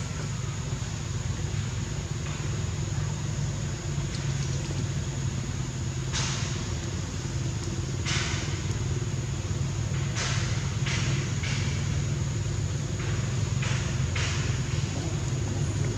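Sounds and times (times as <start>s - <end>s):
low motor hum: 12.2s - 15.9s.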